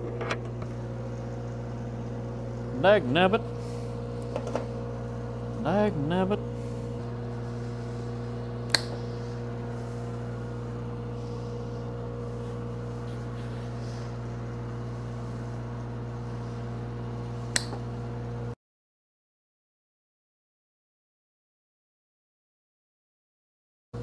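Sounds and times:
welding machine engine humming: 0.0 - 18.6.

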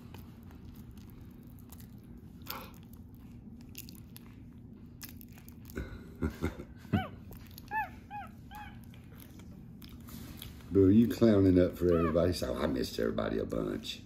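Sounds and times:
monkey squeaking: 7.0 - 8.8, 11.7 - 12.5.

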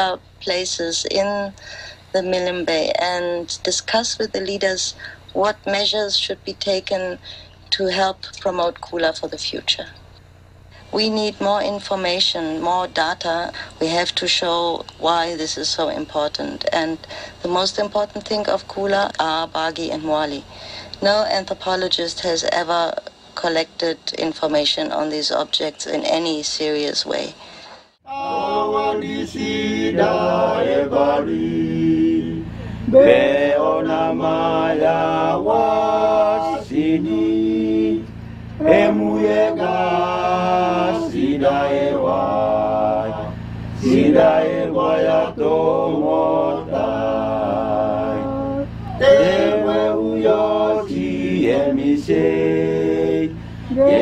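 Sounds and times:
voices chanting a song: 28.0 - 54.0.

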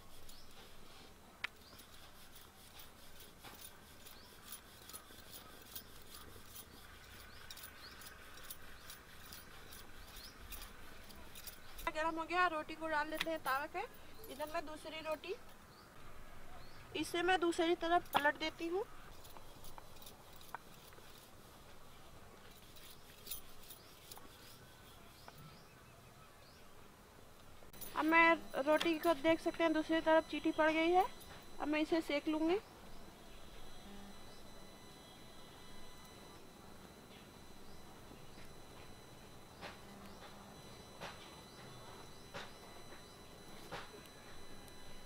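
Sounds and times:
rolling pin rubbing on stone board: 1.6 - 11.0.

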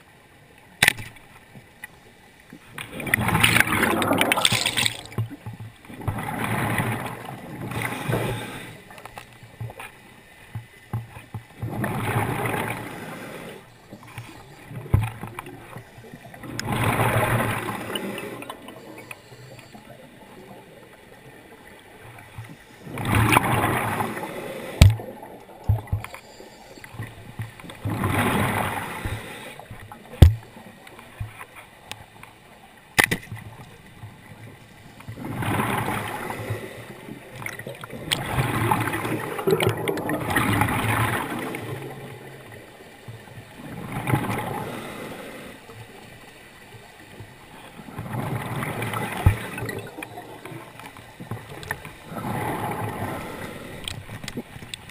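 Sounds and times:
underwater breath bubbles: 2.9 - 5.3, 6.0 - 9.0, 11.6 - 21.6, 22.2 - 30.2, 35.1 - 42.6, 43.6 - 45.6, 47.9 - 54.0.

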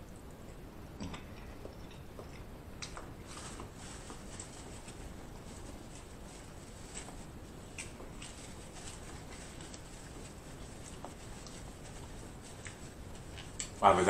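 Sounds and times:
chewing with wet clicks: 0.0 - 3.2, 7.8 - 8.3, 12.5 - 13.8
low hiss: 0.0 - 14.0.

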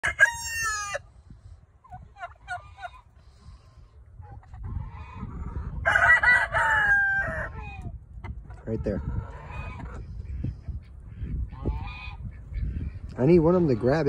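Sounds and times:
rooster crowing: 0.0 - 1.0, 5.8 - 7.6
chickens calling: 0.0 - 14.0.

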